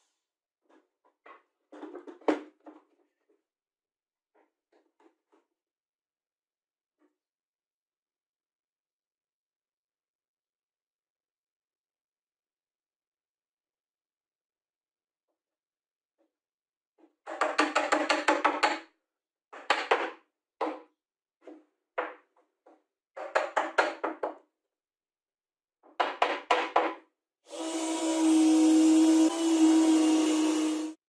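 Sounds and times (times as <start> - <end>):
cordless drill running: 27.5 - 31.0.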